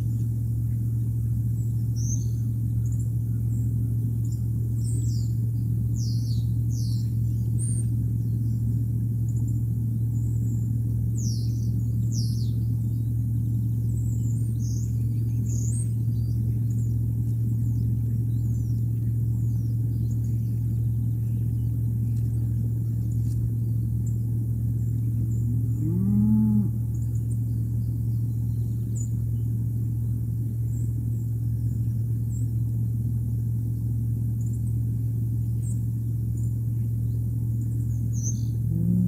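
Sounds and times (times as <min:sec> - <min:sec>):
steady low hum: 0:00.0 - 0:39.0
drawn-out animal call: 0:14.4 - 0:29.3, 0:37.5 - 0:39.0.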